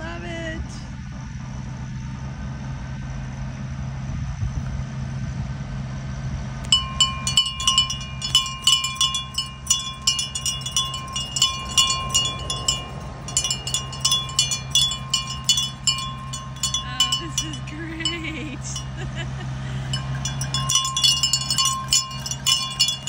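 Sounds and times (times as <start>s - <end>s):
tractor engines rumbling: 4.7s - 23.0s
bell ringing rapidly: 6.6s - 23.0s.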